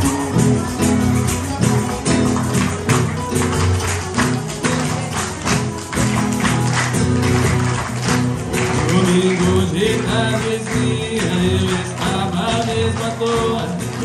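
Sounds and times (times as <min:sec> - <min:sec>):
plucked and strummed guitars: 0:00.0 - 0:14.0
tambourine-like percussion beat: 0:00.0 - 0:14.0.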